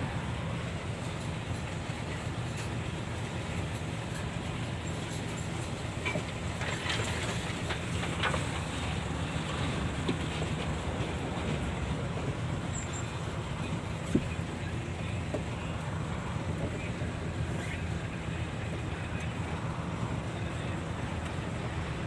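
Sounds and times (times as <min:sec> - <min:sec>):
lorry engine rumble: 0:00.0 - 0:22.0
rattles and clicks: 0:03.7 - 0:11.7.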